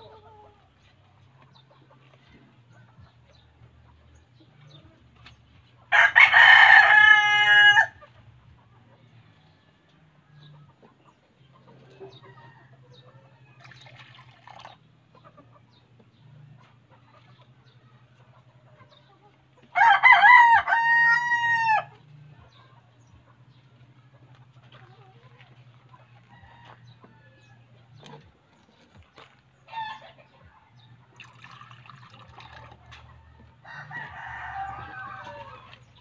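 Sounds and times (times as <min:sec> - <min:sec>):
rooster crowing: 0:05.9 - 0:08.0, 0:19.8 - 0:21.9, 0:33.6 - 0:35.6.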